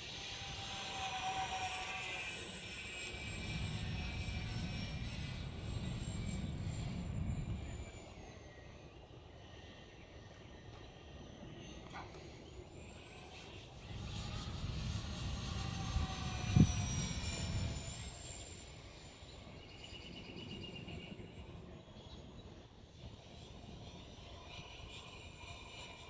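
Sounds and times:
model plane propellers whining: 0.0 - 26.0.

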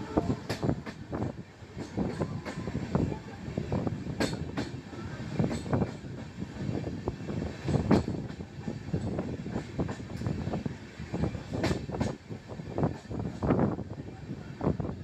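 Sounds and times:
train rumble: 0.0 - 15.0
train wheels clattering: 4.1 - 6.7, 7.5 - 10.6, 11.2 - 12.2.

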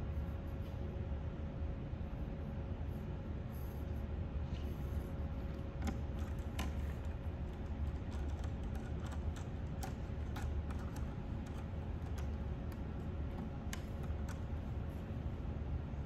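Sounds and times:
steady low hum: 0.0 - 16.0
wires clicking into terminals: 5.6 - 14.7.

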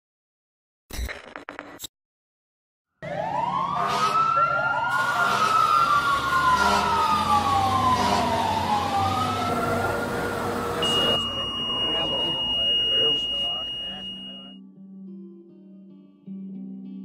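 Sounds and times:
emergency sirens wailing: 3.0 - 14.6.

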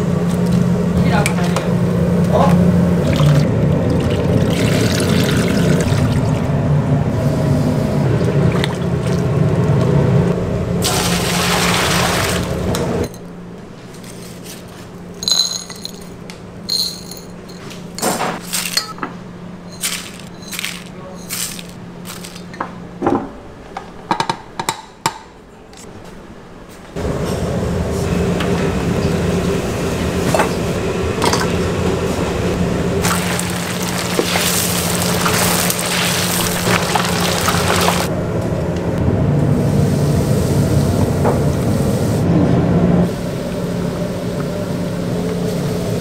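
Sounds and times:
steady low hum: 0.0 - 23.6, 25.4 - 46.0
pot bubbling at a simmer: 2.8 - 6.9, 33.0 - 38.1.

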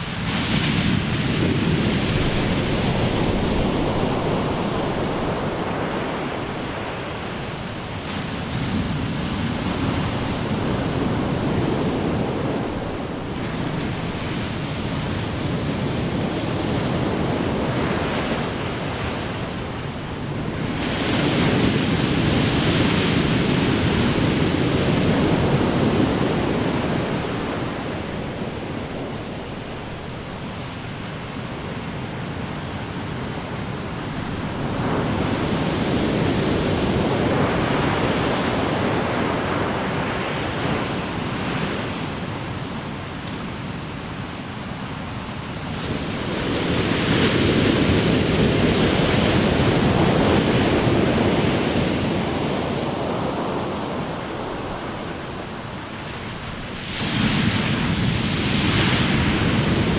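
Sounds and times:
ocean waves crashing: 0.0 - 59.9.

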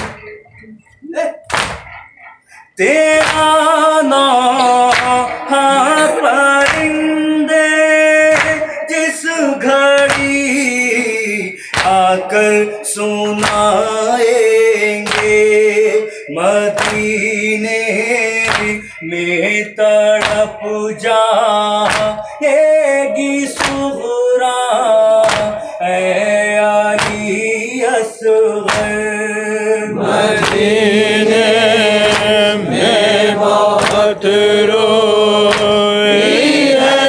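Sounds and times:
hands slapping on chests: 0.0 - 0.4, 1.5 - 2.4, 3.2 - 3.5, 4.8 - 6.0, 6.6 - 7.1, 8.3 - 8.7, 10.0 - 10.4, 11.7 - 12.1, 13.4 - 13.8, 15.0 - 15.5, 16.8 - 17.2, 18.5 - 18.8, 20.2 - 20.5, 21.8 - 22.2, 23.6 - 23.9, 25.2 - 25.6, 26.9 - 27.4, 28.7 - 29.0, 30.3 - 30.9, 32.0 - 34.4, 35.4 - 35.9
men chanting: 1.7 - 37.0.

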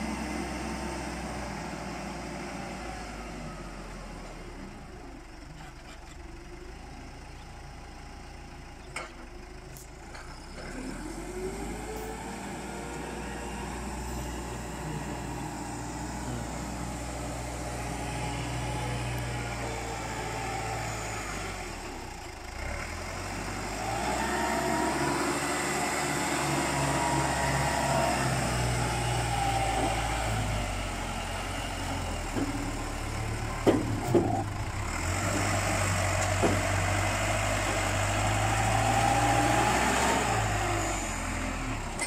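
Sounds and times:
diesel engine under load: 0.0 - 42.0
engine whine: 8.7 - 42.0.

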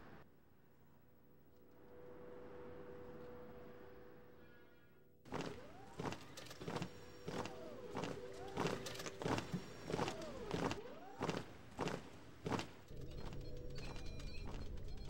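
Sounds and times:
steady humming tone: 0.9 - 15.0
footsteps on cobblestones: 5.3 - 15.0.

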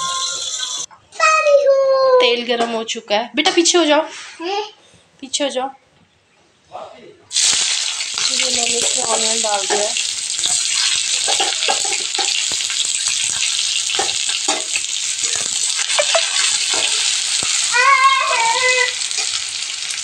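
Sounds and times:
onions sizzling in hot oil: 7.3 - 20.0
spoon knocking against pan: 8.8 - 17.6
high-pitched voice-like sound: 17.7 - 19.0.

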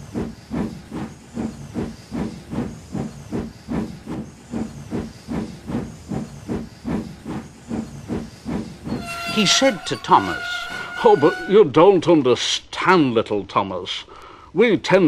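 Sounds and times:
steam locomotive chuffing: 0.0 - 11.8.

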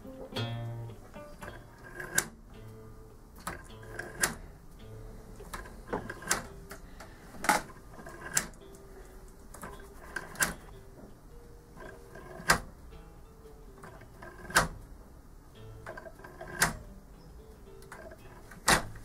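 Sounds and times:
clock ticking wooden clicks: 1.4 - 2.4, 3.4 - 4.4, 5.4 - 10.7, 11.7 - 12.8, 15.8 - 16.9, 17.8 - 19.0.

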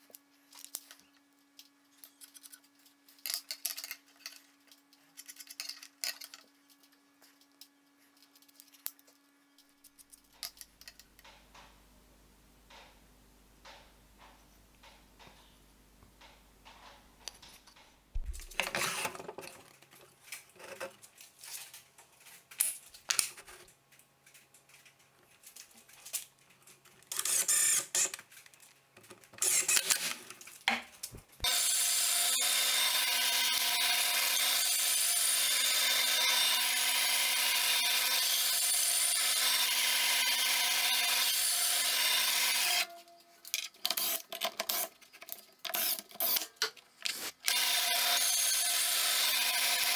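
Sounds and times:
bandsaw running: 31.4 - 42.9, 47.5 - 49.9.

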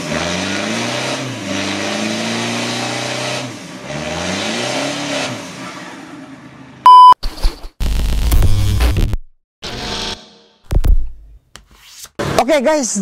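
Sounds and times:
diesel engine revving: 0.0 - 6.7.

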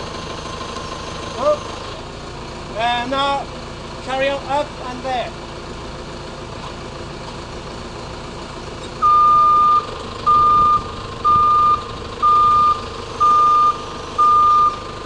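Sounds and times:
machine engine humming: 0.0 - 15.0
reversing alarm beeping: 9.0 - 15.0.

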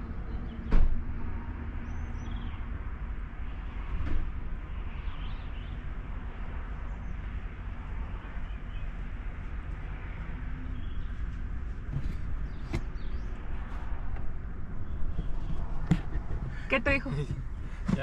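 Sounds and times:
vehicle rumble: 0.0 - 18.0
dull thump: 11.8 - 13.1, 15.1 - 16.6.

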